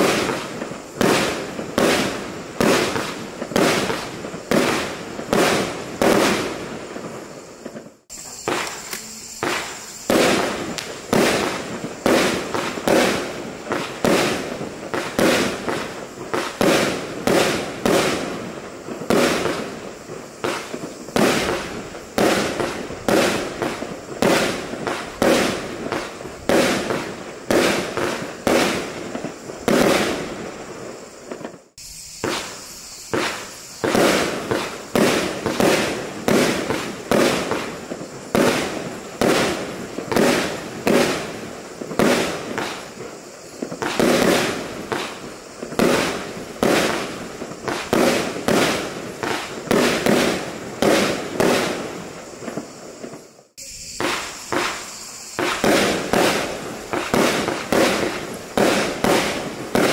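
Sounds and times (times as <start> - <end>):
firework bursts in the air: 0.0 - 59.9
firework shots firing: 0.0 - 59.9.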